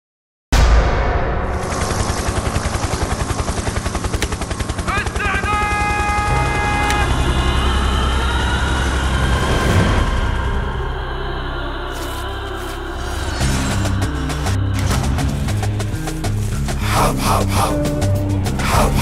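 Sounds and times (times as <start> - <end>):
heavy low drone: 0.6 - 19.0
rapid chopping pulse: 1.5 - 7.1
deep rumble: 6.2 - 19.0.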